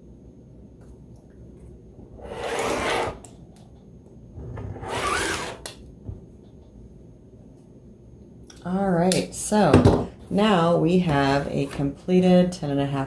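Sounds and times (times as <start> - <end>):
rotary cutter cutting fabric: 2.2 - 3.2, 4.8 - 5.7.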